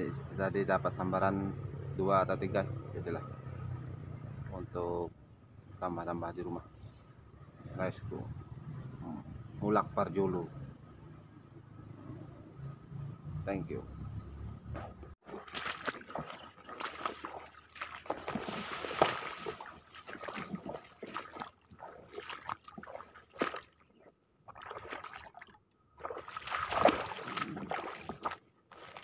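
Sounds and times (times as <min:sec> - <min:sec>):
grass swishing and rustling: 0:15.4 - 0:20.7.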